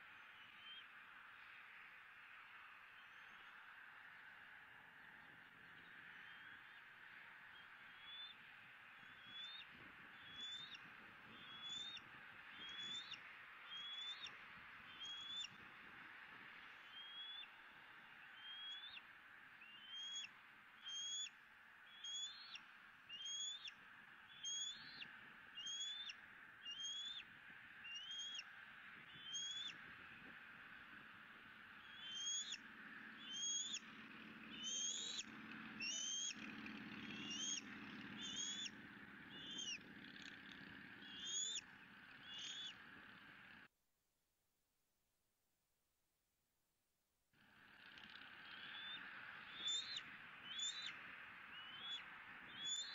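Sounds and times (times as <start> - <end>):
eagle high-pitched chirps: 26.7 - 27.2, 29.2 - 29.7, 31.8 - 32.6, 33.2 - 33.8, 34.6 - 35.2, 35.8 - 36.4, 37.1 - 37.6, 38.2 - 38.7, 39.3 - 39.8, 41.0 - 41.6, 42.2 - 42.8, 48.4 - 50.9, 51.5 - 52.9.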